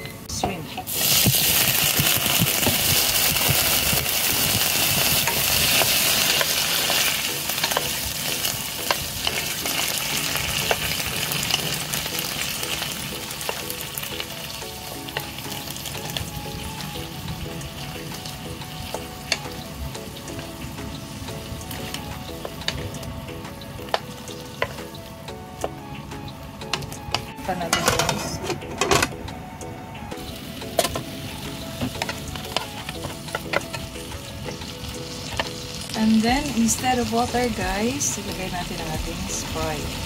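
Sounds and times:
shrimp sizzling in hot oil: 0.5 - 25.2, 30.2 - 40.0
utensil clicking in pan: 1.0 - 11.7.

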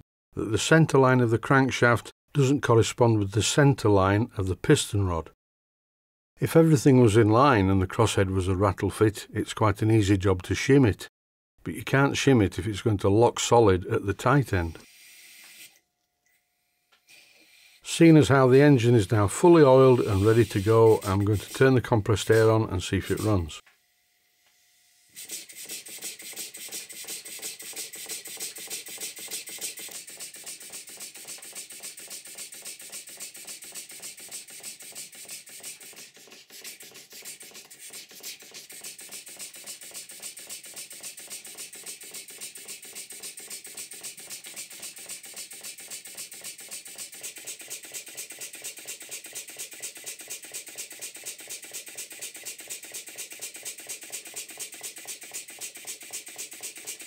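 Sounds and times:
model steam engine clattering: 25.2 - 57.0.

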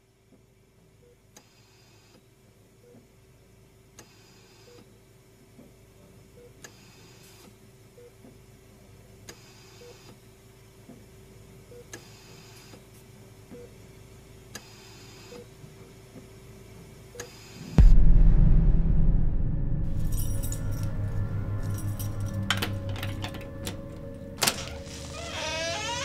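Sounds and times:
faint steady hum: 16.7 - 26.0.

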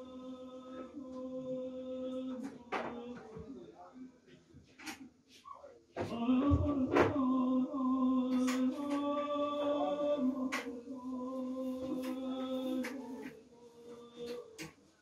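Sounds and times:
man singing a long note: 6.1 - 14.6.

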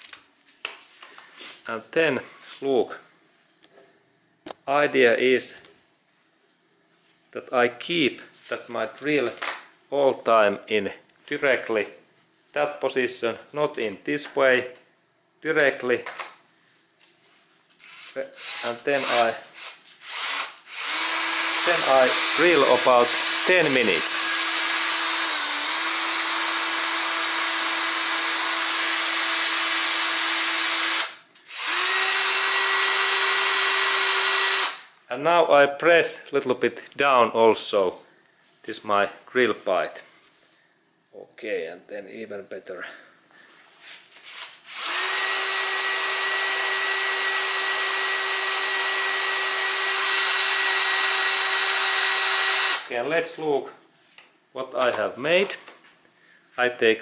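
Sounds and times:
cordless drill drilling into metal: 17.8 - 34.9, 44.7 - 52.9.

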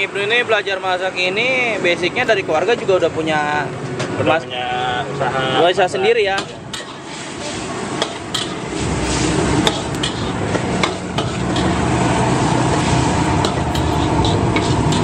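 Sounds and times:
gas burner roaring: 0.0 - 15.0
metal spatula scraping a wok: 6.4 - 15.0.

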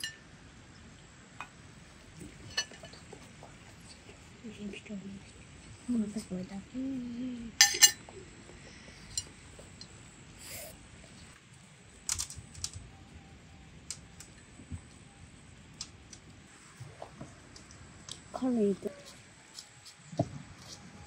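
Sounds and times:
cutlery clicking on plates: 7.6 - 8.0.

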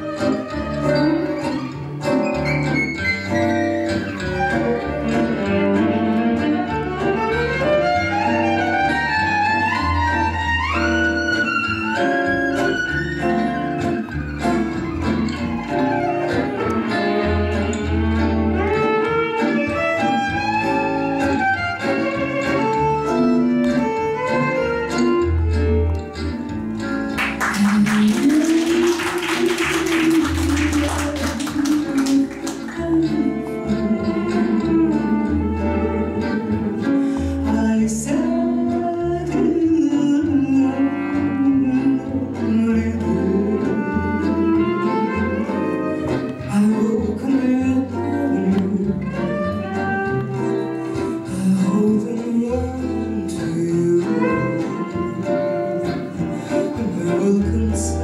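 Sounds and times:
acoustic band playing: 0.0 - 58.0
woman singing: 27.5 - 36.8, 37.4 - 49.7, 51.2 - 55.6, 56.5 - 58.0.

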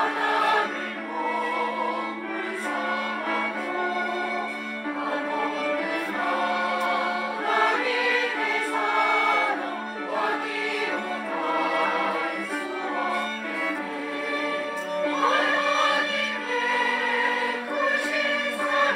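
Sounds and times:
choir singing a hymn: 0.0 - 18.9.

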